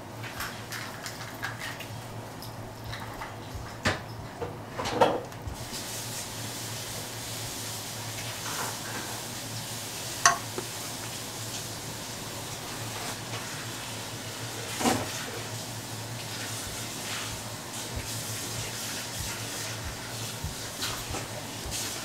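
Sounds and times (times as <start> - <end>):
steady low hum: 2.0 - 22.0
wooden spoon knocking steel pot: 10.2 - 10.7.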